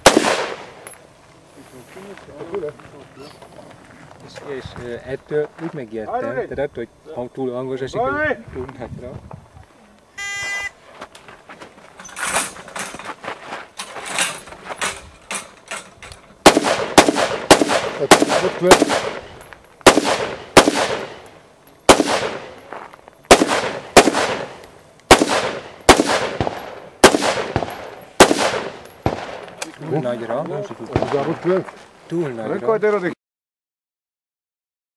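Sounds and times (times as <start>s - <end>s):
faint quick gunshots: 0.0s - 0.8s, 16.4s - 21.2s, 21.9s - 22.6s, 23.3s - 29.5s
rifle shots with echo: 0.0s - 0.9s, 16.4s - 21.3s, 21.9s - 22.6s, 23.3s - 29.6s, 30.9s - 31.5s.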